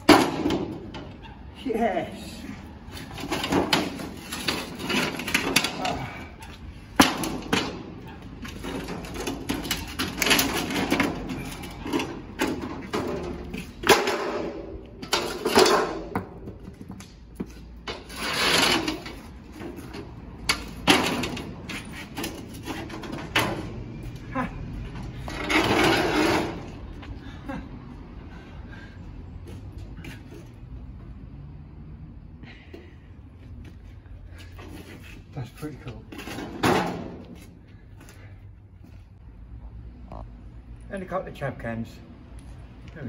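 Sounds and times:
scrap metal clattering: 0:03.0 - 0:16.6, 0:17.8 - 0:23.8, 0:24.9 - 0:26.9.

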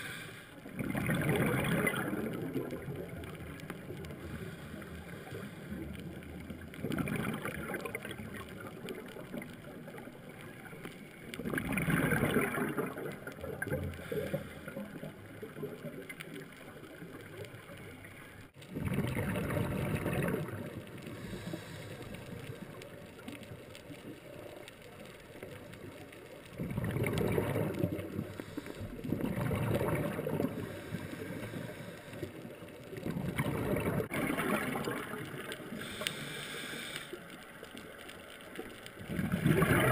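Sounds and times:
steady hiss: 0:00.0 - 0:00.7, 0:03.4 - 0:06.2, 0:21.0 - 0:26.5, 0:28.2 - 0:29.1, 0:30.5 - 0:33.0, 0:35.4 - 0:39.1
diver's exhaled bubbles underwater: 0:00.6 - 0:39.9.

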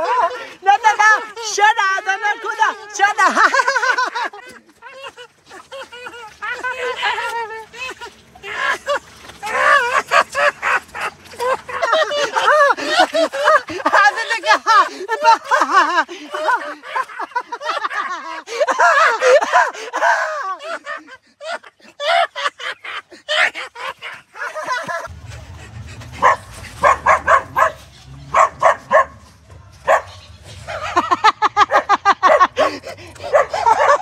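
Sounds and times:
man yelling and laughing: 0:00.0 - 0:27.8, 0:30.6 - 0:34.0
low rumble: 0:25.0 - 0:32.2
dog barking: 0:26.2 - 0:34.0.

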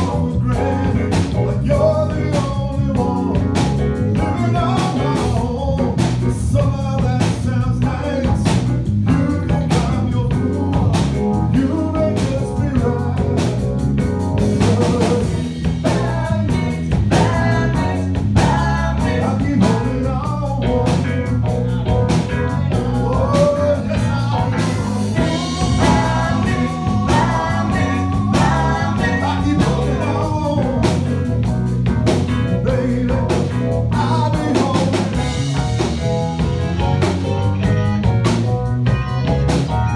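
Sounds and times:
live rock band playing: 0:00.0 - 0:39.9
woman singing: 0:22.5 - 0:30.3.

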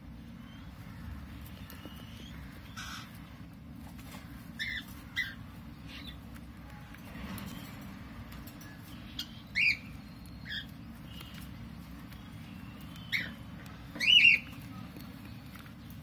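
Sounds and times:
lovebirds chirping: 0:00.0 - 0:16.0
steady low hum: 0:00.0 - 0:16.0.

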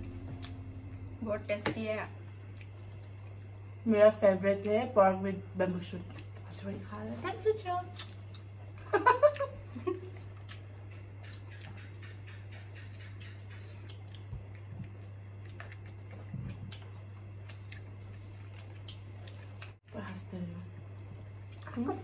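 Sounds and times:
low hum: 0:00.0 - 0:22.0
chewing: 0:00.2 - 0:00.7, 0:02.5 - 0:03.6, 0:06.1 - 0:06.6, 0:07.9 - 0:20.2, 0:21.0 - 0:22.0.

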